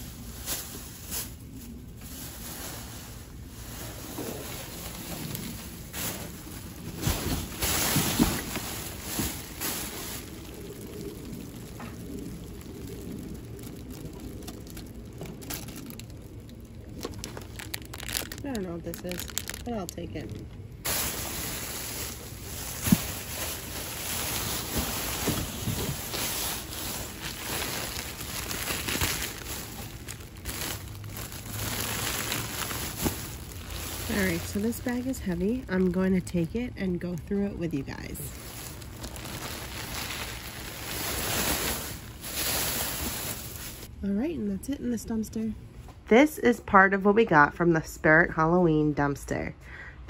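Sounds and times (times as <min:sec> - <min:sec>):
plastic bags and cardboard rustling: 0:00.0 - 0:43.9.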